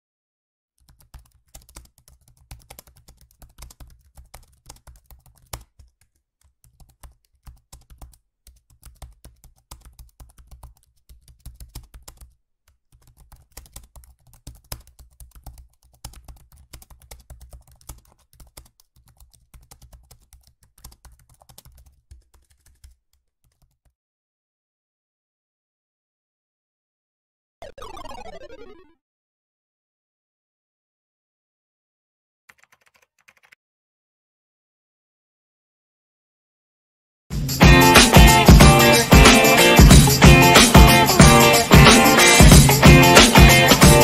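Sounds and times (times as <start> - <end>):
typing on computer keyboard: 0.8 - 23.9, 32.5 - 33.6.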